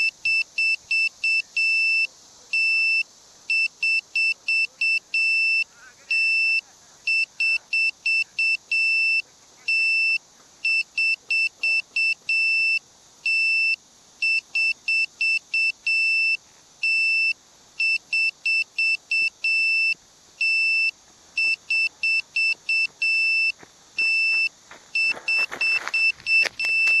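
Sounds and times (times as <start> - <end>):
high-pitched electronic buzzer beeps: 0.0 - 27.0
footsteps through grass: 24.6 - 27.0.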